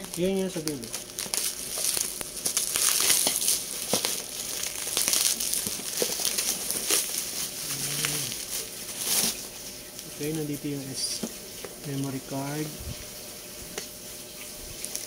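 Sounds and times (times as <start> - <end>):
scissors cutting plastic: 0.0 - 9.4
bubble wrap crinkling: 0.0 - 15.0.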